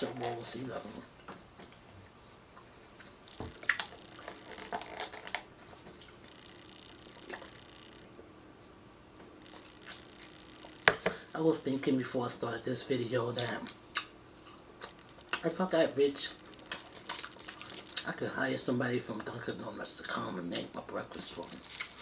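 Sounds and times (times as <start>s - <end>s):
person chewing food: 2.5s - 6.4s, 7.0s - 7.7s, 9.4s - 10.8s, 13.9s - 15.4s, 16.4s - 18.1s.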